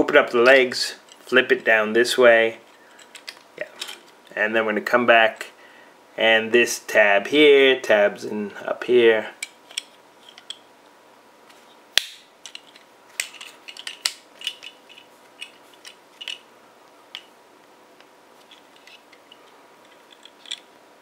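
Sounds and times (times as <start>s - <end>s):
plastic toy parts clicking: 12.0s - 16.4s, 18.5s - 20.7s.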